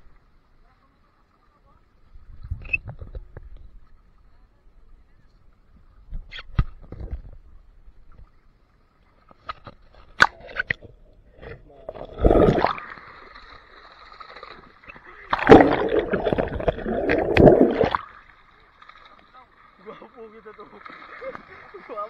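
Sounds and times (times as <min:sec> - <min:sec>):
water splashing and sloshing: 0:05.6 - 0:22.0.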